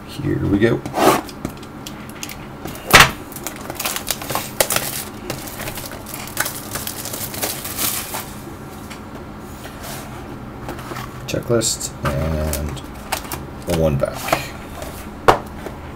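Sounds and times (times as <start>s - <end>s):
plastic wrapping crinkling: 1.8s - 8.4s.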